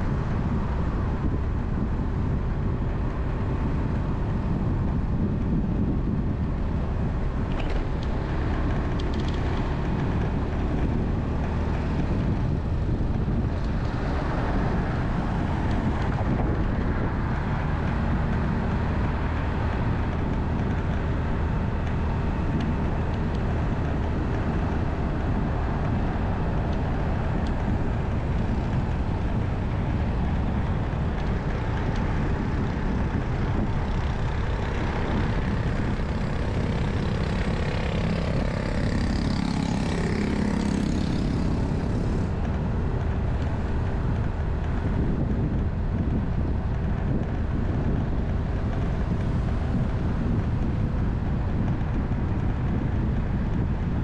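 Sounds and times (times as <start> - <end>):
vehicle road noise: 0.0 - 54.0
wind blowing across microphone: 0.0 - 54.0.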